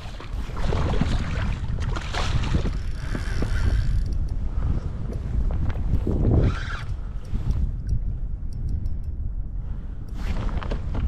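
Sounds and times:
water splashing against kayak hull: 0.0 - 3.6
wind rumbling on microphone: 0.0 - 11.0.

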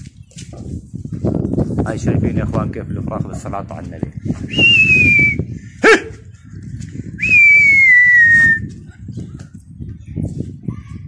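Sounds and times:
person whistling loudly: 4.5 - 5.4, 7.2 - 8.6.

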